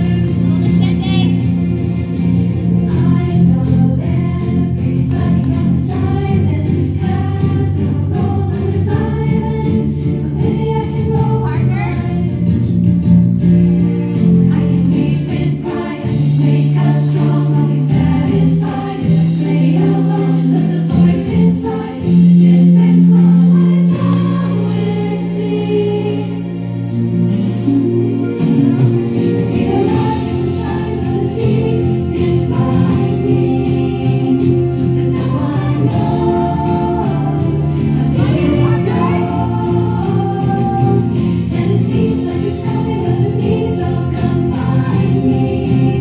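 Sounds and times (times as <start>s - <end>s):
girls choir singing: 2.6s - 12.6s, 14.2s - 26.9s, 28.5s - 46.0s.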